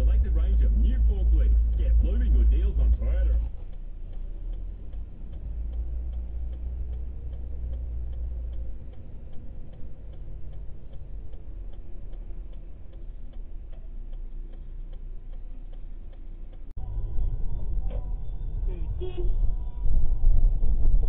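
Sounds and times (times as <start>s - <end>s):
engine and road rumble: 0.0s - 21.0s
car turn indicator clicking: 1.4s - 16.7s.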